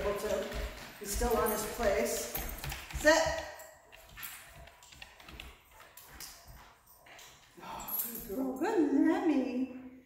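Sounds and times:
dog claws clicking on wood floor: 0.0 - 7.5.

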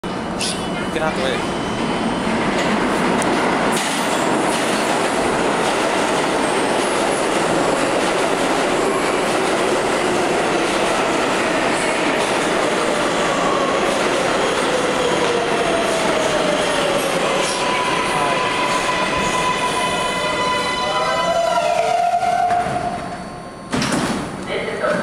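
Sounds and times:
subway train wheels on rail: 0.0 - 25.0
train braking whine: 17.2 - 24.0.

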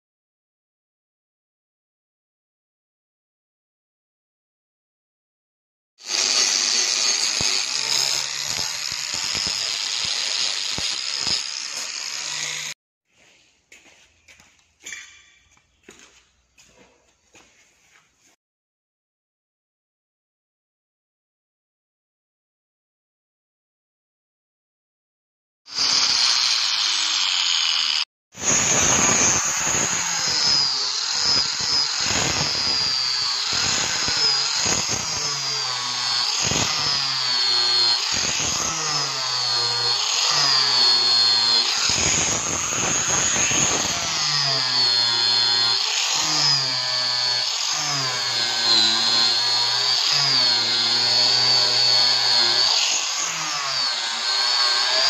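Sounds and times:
angle grinder polishing metal: 6.0 - 12.8, 25.7 - 55.0.

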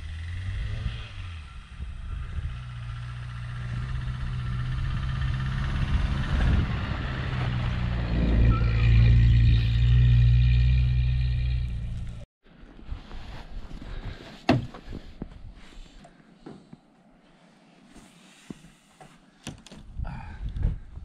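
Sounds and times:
car engine revving: 2.2 - 12.3.

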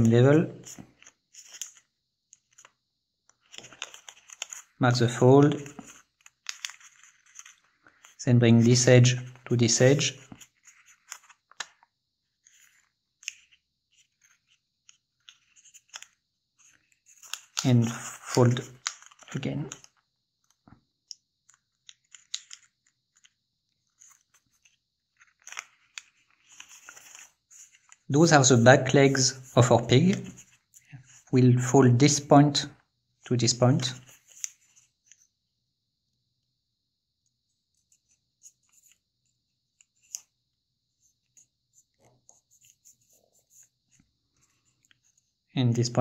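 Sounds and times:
paper being folded and creased: 0.6 - 2.8, 3.4 - 19.9, 21.5 - 31.3.

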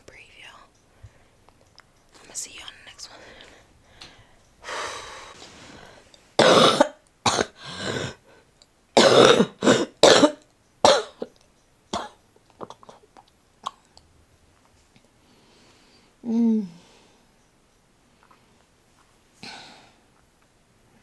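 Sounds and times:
woman coughing: 6.4 - 8.2, 9.0 - 11.3.

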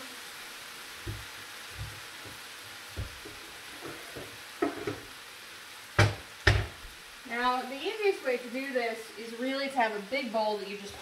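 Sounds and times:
vegetables sizzling in a wok: 0.0 - 11.0
soft knocks: 1.0 - 2.4, 3.0 - 5.1, 6.0 - 6.8.

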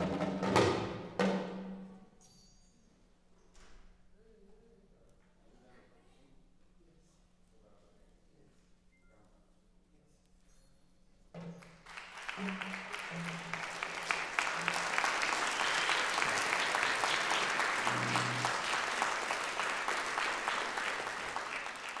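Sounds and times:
audience applause: 11.7 - 22.0.

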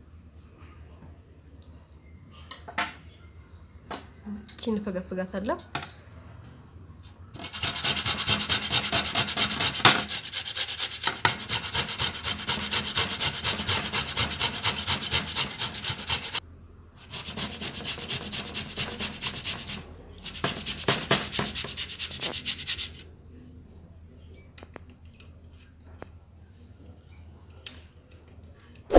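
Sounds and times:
toothbrush scrubbing a bowl: 7.4 - 16.4, 17.0 - 23.0.

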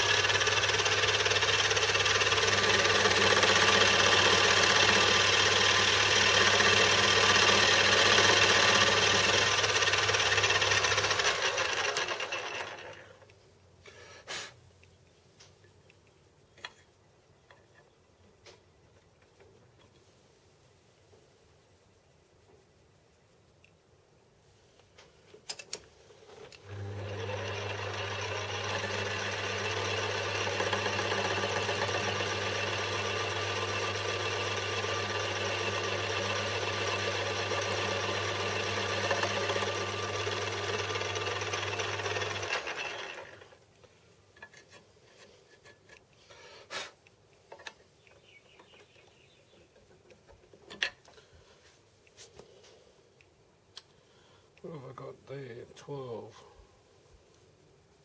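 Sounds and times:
metal lathe running: 0.0 - 13.0, 26.6 - 43.5.

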